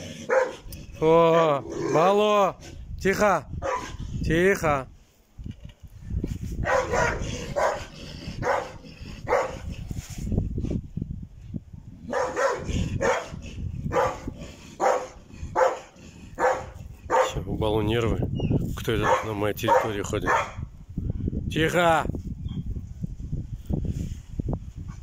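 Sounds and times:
dog barking: 0.3 - 0.7, 3.6 - 4.0, 6.6 - 9.7, 12.1 - 17.4, 19.0 - 20.7.

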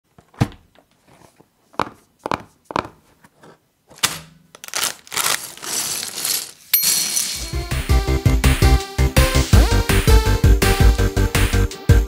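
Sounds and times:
plastic bag crinkling: 4.5 - 7.4.

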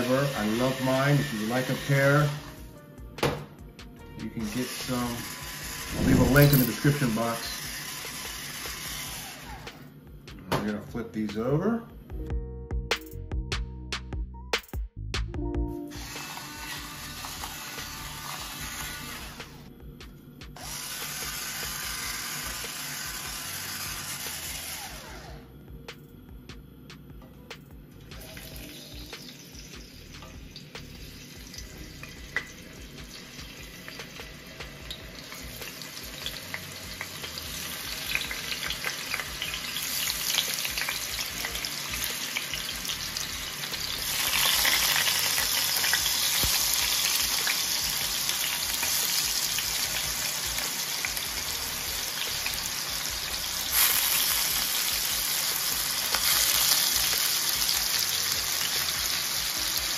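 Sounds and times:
potatoes sizzling in oil: 0.0 - 2.6, 4.4 - 9.3, 15.9 - 19.6, 20.6 - 25.0, 28.1 - 59.9.

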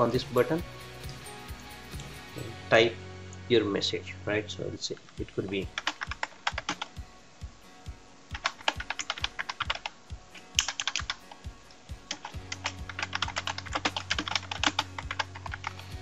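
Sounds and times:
keyboard typing: 5.2 - 6.9, 8.3 - 11.4, 12.1 - 15.9.

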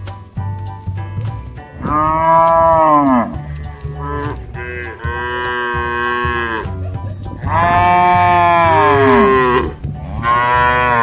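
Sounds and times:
cow mooing: 1.8 - 6.7, 7.4 - 11.0.

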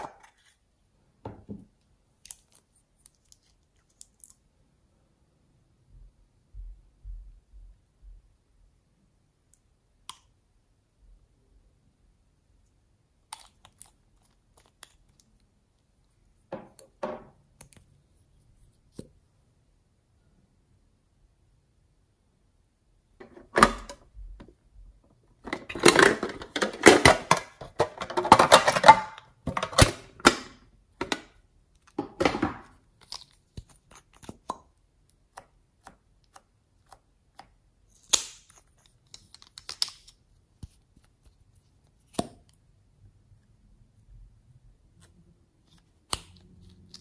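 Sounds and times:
plastic pens clicking and rustling: 38.1 - 40.8.

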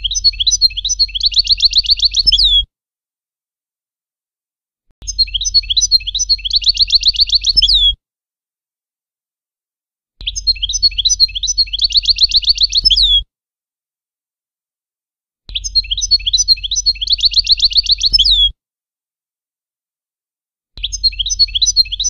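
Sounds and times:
goldfinch song: 0.0 - 2.7, 5.0 - 8.0, 10.2 - 13.2, 15.5 - 18.5, 20.8 - 22.0.

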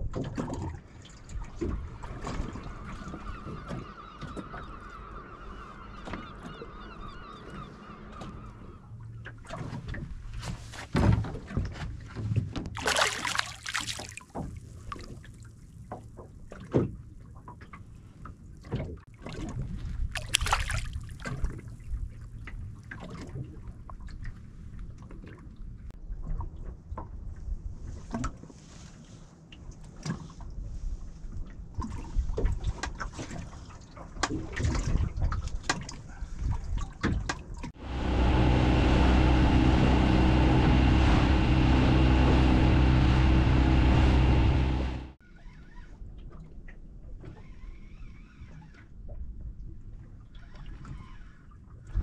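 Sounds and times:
water sloshing against boat: 0.0 - 52.0
loud splashes: 12.7 - 14.4, 20.1 - 21.4.

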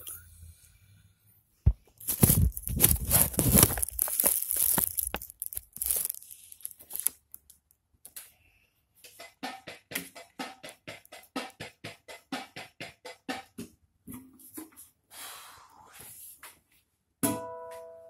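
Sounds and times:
rustling against microphone: 1.7 - 7.1.

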